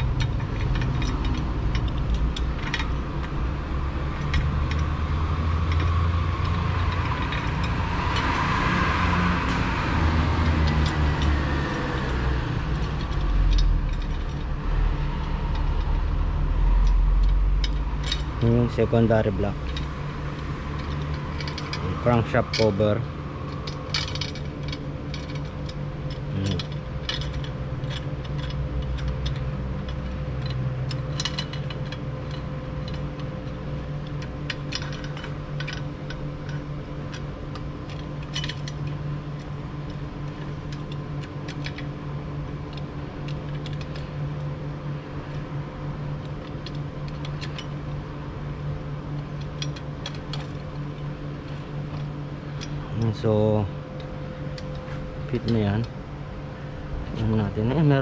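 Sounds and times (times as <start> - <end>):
steady hum: 0.0 - 58.0.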